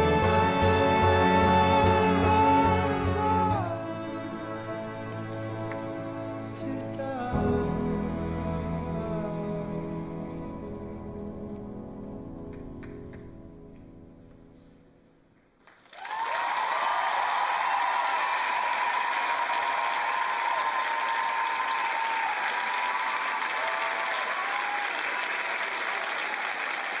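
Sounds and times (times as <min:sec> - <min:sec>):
music: 0:00.0 - 0:15.6
audience applause and cheering: 0:15.7 - 0:27.0.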